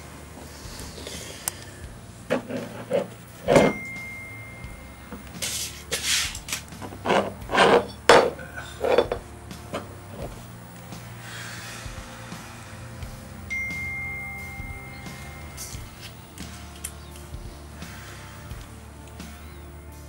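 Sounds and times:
glass bottle being handled: 0:02.3 - 0:06.0, 0:06.8 - 0:10.3.

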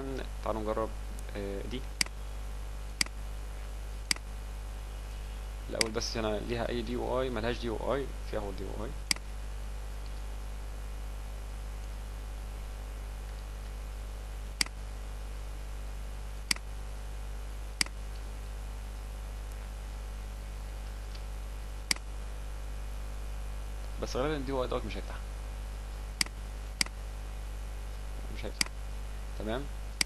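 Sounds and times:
low electrical hum: 0:00.0 - 0:30.0
computer mouse clicks: 0:05.8 - 0:06.0.

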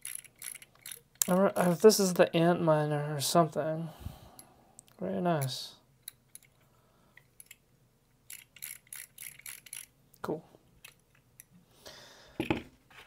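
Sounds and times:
metal fidget toys clicking: 0:00.0 - 0:01.4, 0:08.3 - 0:09.9.

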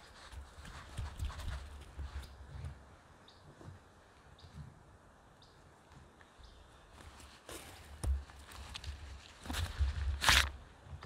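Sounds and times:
rustling: 0:00.0 - 0:03.9, 0:06.9 - 0:11.0.

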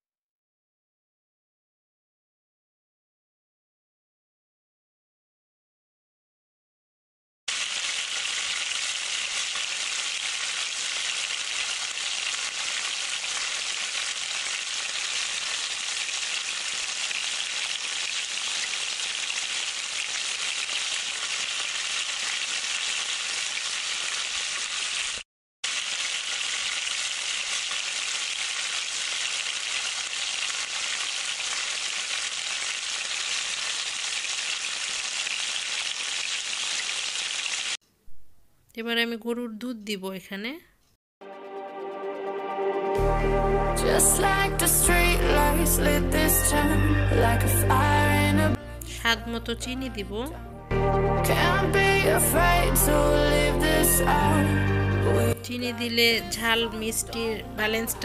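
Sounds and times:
chicken sizzling in oil: 0:07.5 - 0:37.8.

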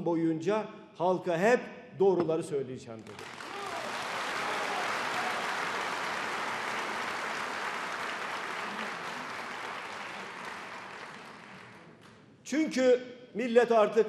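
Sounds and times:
audience applauding: 0:03.0 - 0:12.2.

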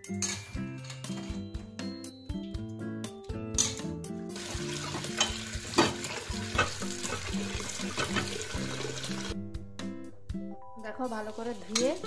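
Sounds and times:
background music: 0:00.0 - 0:12.0
tap water running into plate: 0:04.4 - 0:09.3.

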